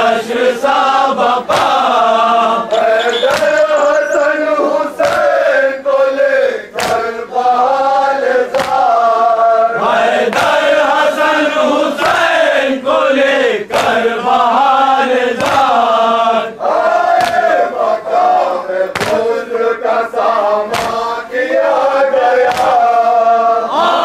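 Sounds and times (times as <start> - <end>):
men chanting in unison: 0.0 - 24.0
hands slapping chests: 2.7 - 3.9, 5.0 - 5.3, 6.8 - 7.0, 8.5 - 8.9, 18.9 - 19.2, 20.7 - 21.0, 22.5 - 22.8.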